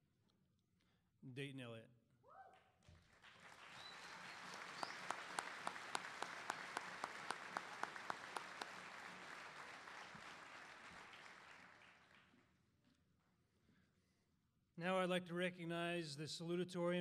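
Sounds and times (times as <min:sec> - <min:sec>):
audience applauding: 0:03.0 - 0:12.4
person clapping close by: 0:03.2 - 0:12.3.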